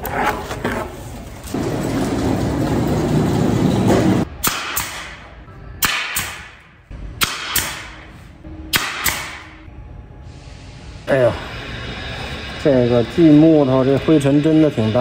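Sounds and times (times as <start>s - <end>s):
loud machine noise: 1.6s - 4.3s, 11.1s - 15.0s
pneumatic nail gun firing: 4.4s - 6.6s, 7.2s - 8.0s, 8.7s - 9.6s.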